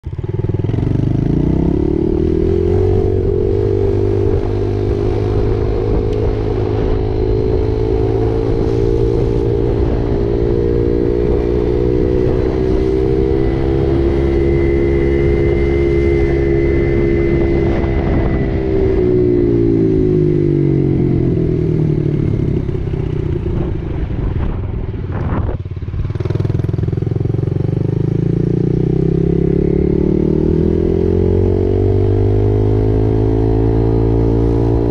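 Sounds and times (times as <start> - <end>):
dirt bike engine revving: 0.3 - 22.7.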